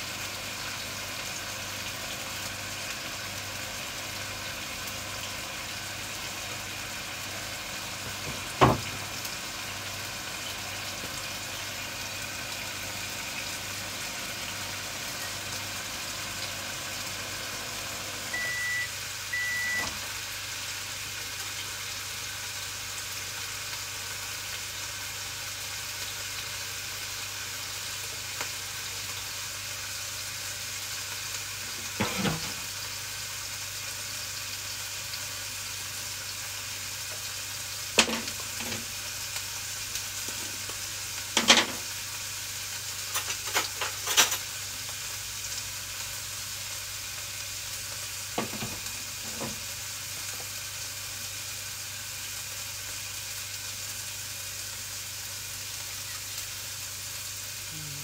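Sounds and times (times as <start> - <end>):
food sizzling in a pan: 0.0 - 58.0
short electronic beeps: 18.3 - 19.9.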